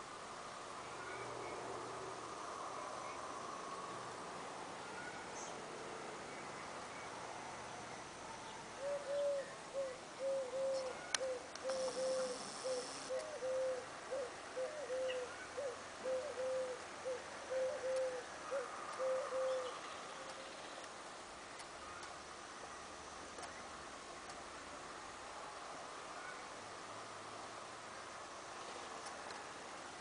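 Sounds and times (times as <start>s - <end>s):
bird whistling notes: 10.2s - 13.8s.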